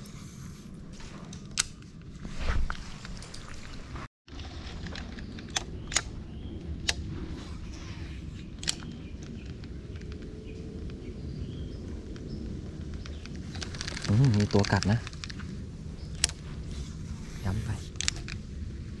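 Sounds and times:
low outdoor rumble: 0:00.0 - 0:19.0
sharp clicks: 0:05.4 - 0:06.2, 0:08.6 - 0:11.0.

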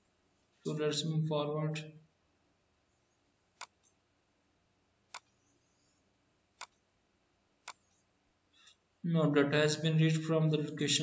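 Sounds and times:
computer mouse clicking: 0:03.6 - 0:04.0, 0:05.1 - 0:05.4, 0:06.5 - 0:06.9, 0:07.6 - 0:08.1.

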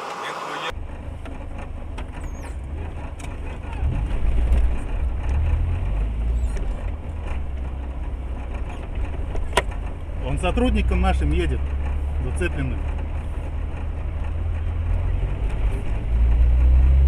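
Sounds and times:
car driving low rumble: 0:00.0 - 0:17.0.

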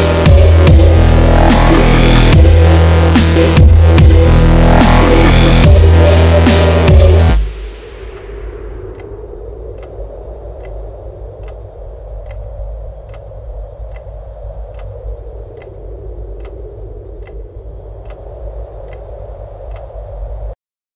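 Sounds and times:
low steady drone: 0:00.0 - 0:20.6
sharp ticks: 0:08.1 - 0:08.3, 0:08.9 - 0:20.0.

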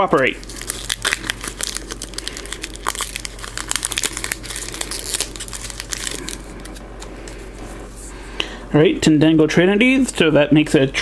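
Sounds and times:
foil wrapper crinkling: 0:00.0 - 0:07.6.

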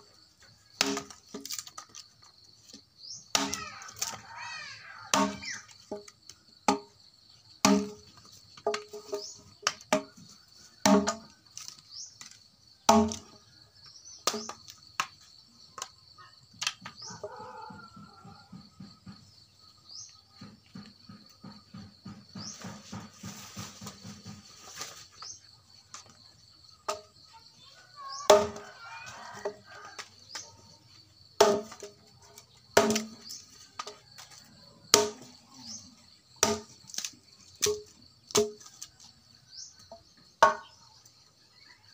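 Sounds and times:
insect trill: 0:00.0 - 0:41.9
blade chopping wood: 0:00.8 - 0:01.8, 0:07.6 - 0:10.1, 0:10.8 - 0:13.4, 0:14.2 - 0:15.2, 0:31.4 - 0:31.9, 0:32.8 - 0:34.3, 0:34.9 - 0:35.3, 0:36.4 - 0:38.9, 0:40.4 - 0:40.7.

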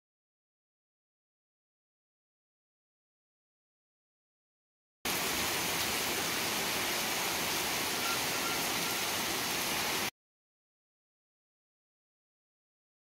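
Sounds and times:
heavy rain: 0:05.1 - 0:10.1.

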